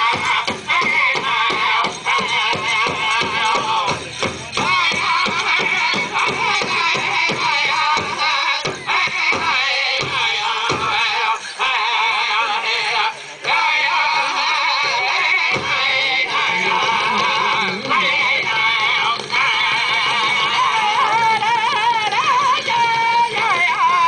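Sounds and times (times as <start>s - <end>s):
steady drum beat: 0.0s - 24.0s
high wavering singing voices: 9.3s - 24.0s.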